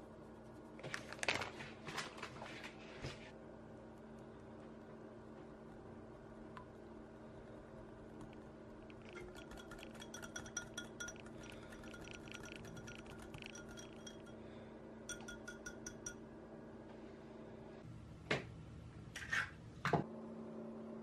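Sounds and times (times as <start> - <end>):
wire whisk clinking on glass bowl: 8.9 - 14.4, 15.1 - 16.2.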